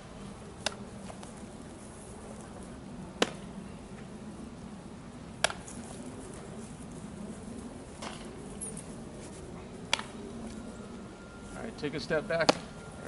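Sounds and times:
baseball smacking into glove: 3.2 - 3.4, 5.4 - 5.8, 9.9 - 10.2, 12.4 - 12.7.

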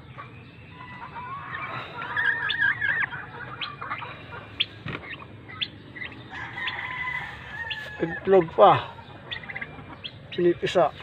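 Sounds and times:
hen warbling call: 0.8 - 6.2.

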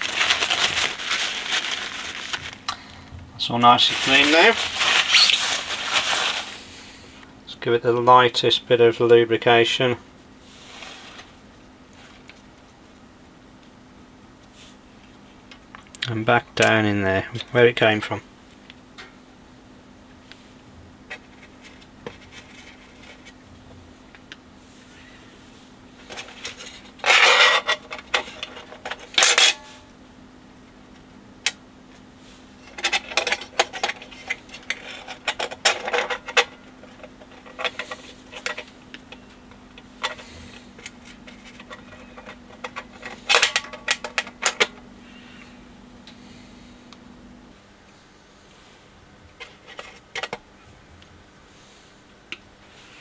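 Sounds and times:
metal parts clicking and scraping: 26.1 - 29.7, 32.6 - 39.2, 40.0 - 44.8.

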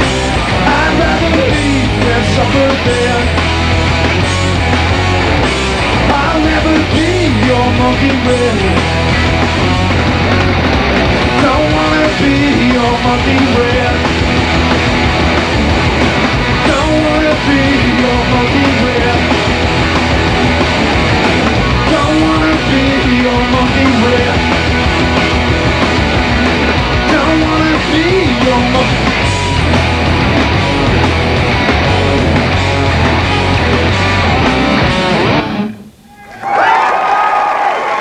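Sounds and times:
bass guitar: 0.0 - 36.1
electric guitars: 0.0 - 36.6
drums: 0.0 - 38.0.

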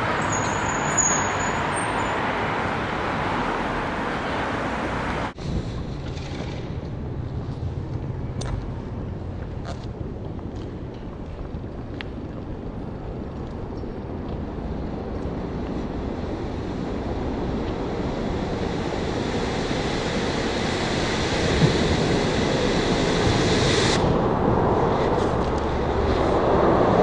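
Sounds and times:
firework fountain hissing: 16.9 - 24.2.

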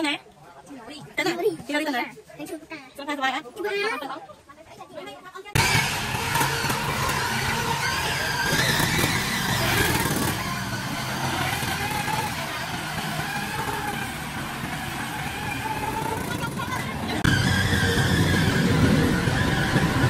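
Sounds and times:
small engine running: 5.6 - 20.0
rail cart rattling on track: 7.9 - 20.0.

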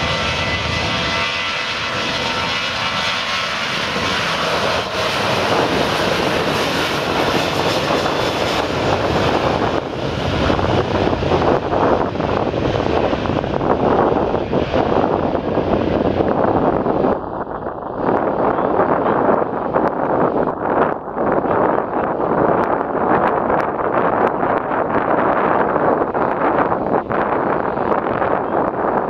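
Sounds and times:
jet engines whining: 0.0 - 22.4.

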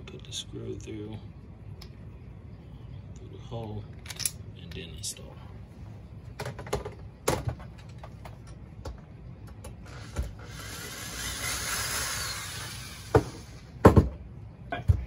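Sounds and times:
metal parts clicking and knocking: 4.0 - 4.4.

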